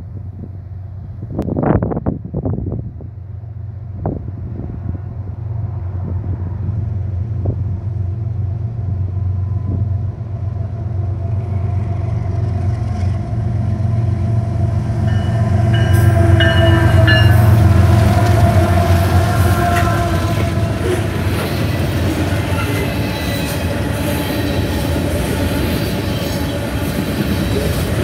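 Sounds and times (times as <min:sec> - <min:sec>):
diesel locomotive engine rumble: 0:00.0 - 0:28.0
train wheels clanking and squealing: 0:18.2 - 0:28.0.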